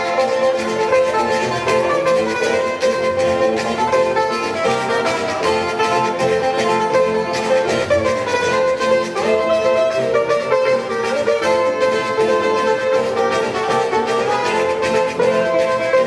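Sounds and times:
string band playing: 0:00.0 - 0:16.0.

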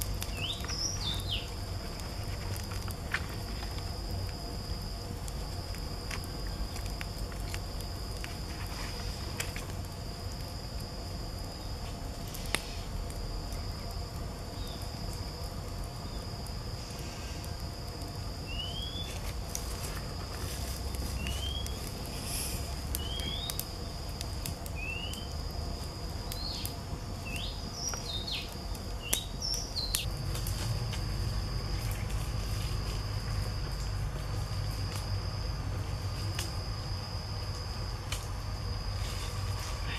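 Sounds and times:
insects trilling: 0:00.0 - 0:39.9
bird chirping: 0:00.3 - 0:01.6
low rumble: 0:30.0 - 0:39.8.

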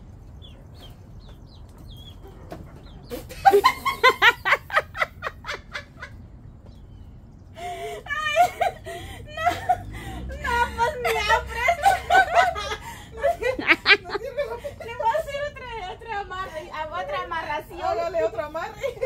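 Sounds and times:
chickens peeping: 0:00.0 - 0:04.9
woman laughing heartily: 0:03.1 - 0:06.2, 0:07.6 - 0:15.6.

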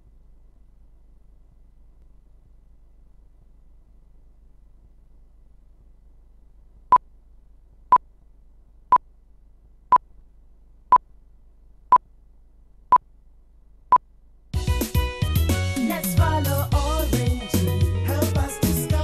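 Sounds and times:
loud music: 0:14.6 - 0:19.0.

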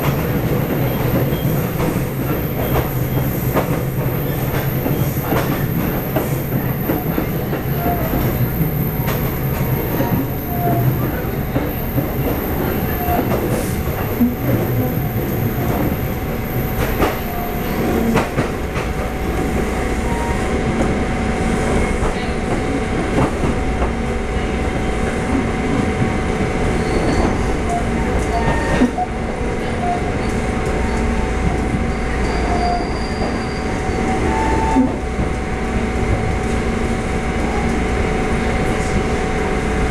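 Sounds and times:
train wheels rumbling on rail: 0:00.0 - 0:39.9
wheel squeals: 0:32.1 - 0:34.9.

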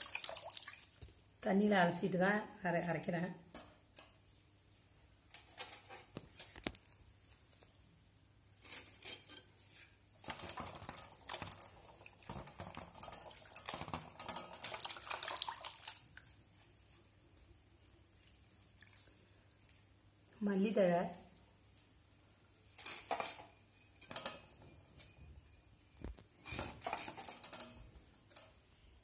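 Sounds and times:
hands splashing water in pot: 0:00.0 - 0:01.1, 0:10.3 - 0:16.4.

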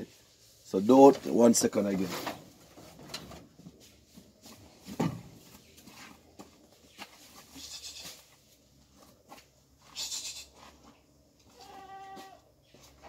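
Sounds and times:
goat bleating: 0:07.6 - 0:08.2, 0:11.4 - 0:12.5
short hissing bursts: 0:09.9 - 0:10.6.

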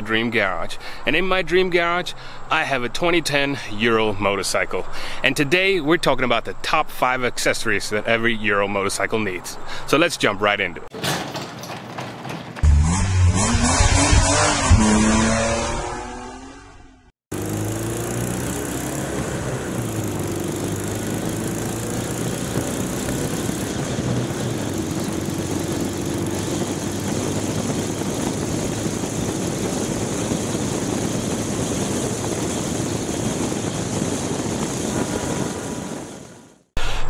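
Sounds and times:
road noise: 0:12.5 - 0:36.7
motorcycle engine running: 0:12.6 - 0:36.7
wind rushing over microphone: 0:17.6 - 0:36.6.

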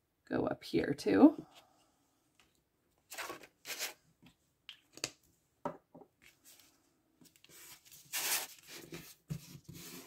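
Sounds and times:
paper envelope rustling: 0:03.1 - 0:04.0, 0:07.3 - 0:09.9.

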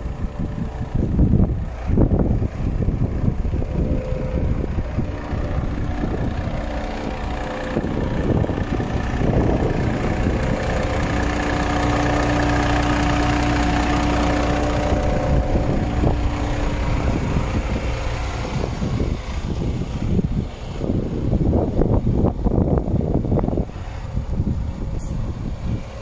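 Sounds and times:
steady hum: 0:00.0 - 0:20.4
truck diesel engine idling: 0:00.0 - 0:26.0.

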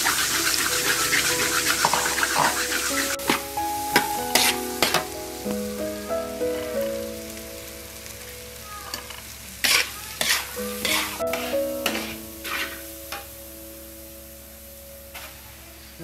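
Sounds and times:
food sizzling: 0:00.0 - 0:16.0
metal spatula scraping in wok: 0:00.1 - 0:03.4, 0:04.3 - 0:05.1, 0:08.9 - 0:13.0.

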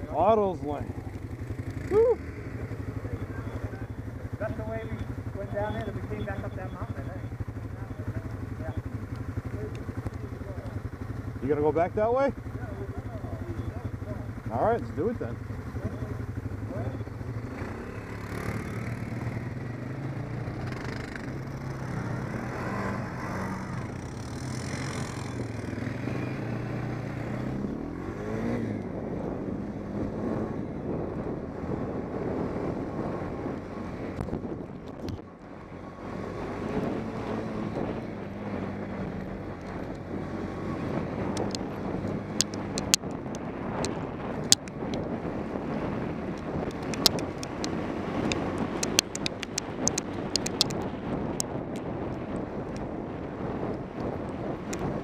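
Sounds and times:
atv engine running: 0:00.0 - 0:55.0
sharp clicks: 0:08.8 - 0:11.2, 0:41.3 - 0:45.1, 0:46.3 - 0:52.9.

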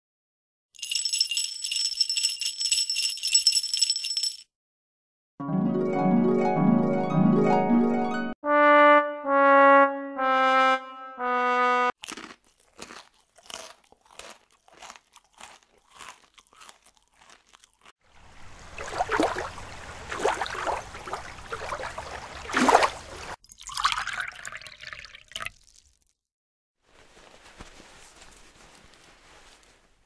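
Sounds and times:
cartoon brass notes: 0:08.4 - 0:12.0
splashing with low rumble: 0:18.1 - 0:23.4.

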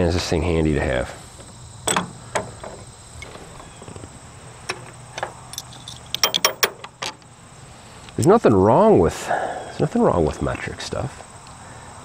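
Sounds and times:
wrench clicking on bolts: 0:04.7 - 0:07.2.

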